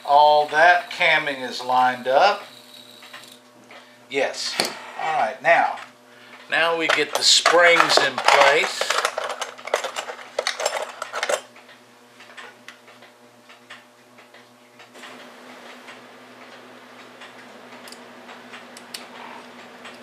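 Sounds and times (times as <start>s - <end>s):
faint steady hum: 0.0s - 20.0s
clock parts clicking and clinking: 1.6s - 3.4s, 5.6s - 14.4s.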